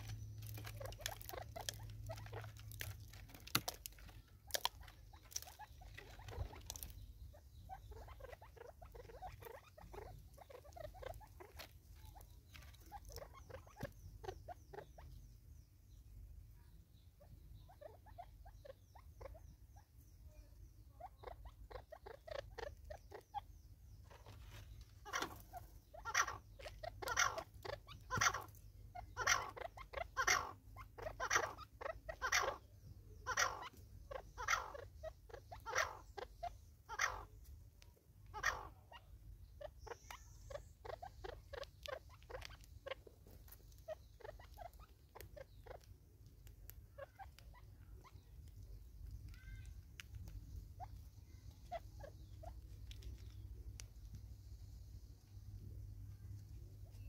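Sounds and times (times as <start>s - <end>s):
animal calling with harsh notes: 25.0s - 37.4s, 38.3s - 43.0s.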